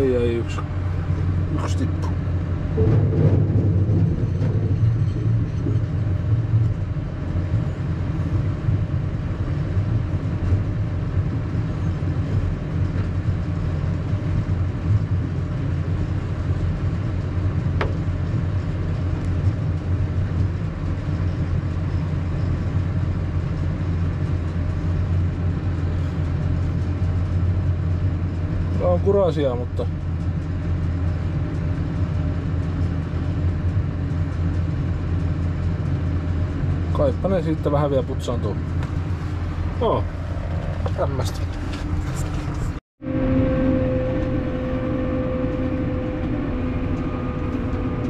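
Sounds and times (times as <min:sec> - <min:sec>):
tractor and harvester drone: 0:00.0 - 0:48.0.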